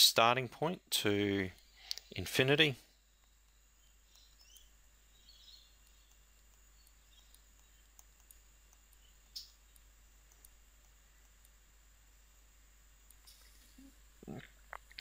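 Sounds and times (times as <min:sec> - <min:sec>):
stylus tapping on tablet screen: 0:05.4 - 0:11.6.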